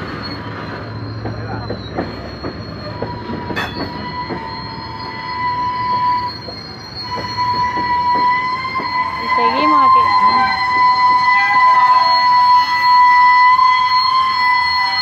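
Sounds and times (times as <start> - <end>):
steel wheels squealing: 0.0 - 15.0
train wheels clacking over rail joints: 0.7 - 4.9, 5.8 - 9.1.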